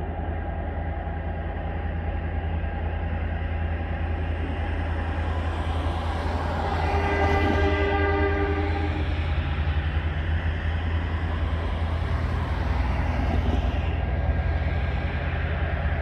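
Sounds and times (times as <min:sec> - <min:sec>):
diesel locomotive engine drone: 0:00.0 - 0:16.0
car passing: 0:05.2 - 0:16.0.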